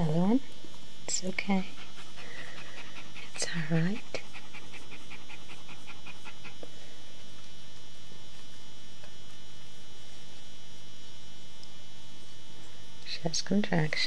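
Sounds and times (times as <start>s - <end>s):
electrical hum: 0.0s - 14.0s
dog panting rapidly: 1.4s - 6.6s.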